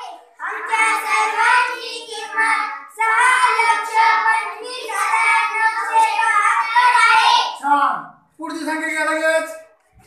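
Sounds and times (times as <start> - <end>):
children singing in unison: 0.0 - 7.6.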